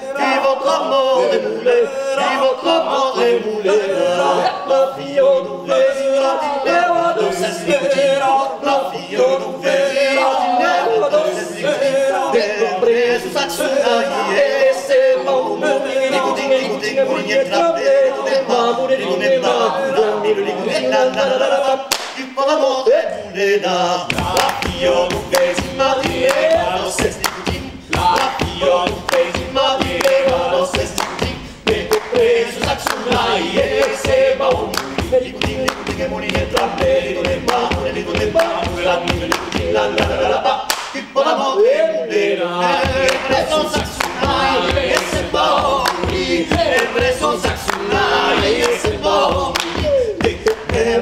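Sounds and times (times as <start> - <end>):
male vocal group singing: 0.0 - 51.0
hand clapping: 21.9 - 22.3, 24.2 - 40.1, 40.7 - 41.0, 43.0 - 51.0.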